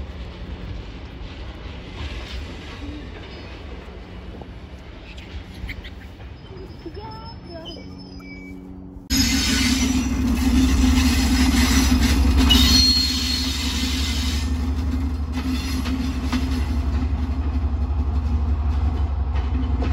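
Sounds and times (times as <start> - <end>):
diesel locomotive engine throbbing: 0.0 - 19.9
wheels rumbling on rails: 0.0 - 19.9
brief high squeal: 7.0 - 10.1, 12.5 - 14.4.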